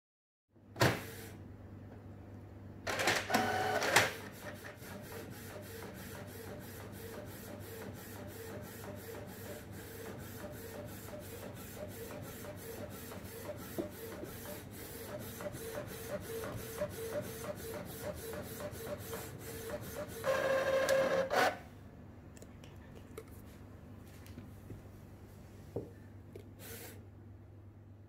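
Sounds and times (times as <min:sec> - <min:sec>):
printer click: 0:02.9 - 0:04.6
printer paper feed whir: 0:02.9 - 0:21.6.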